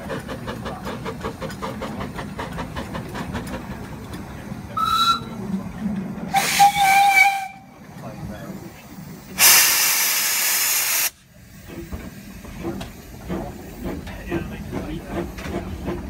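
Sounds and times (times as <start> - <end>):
steam locomotive exhaust beats: 0.0 - 16.0
high steam whistle blast: 6.3 - 7.6
long low steam whistle: 6.3 - 7.6.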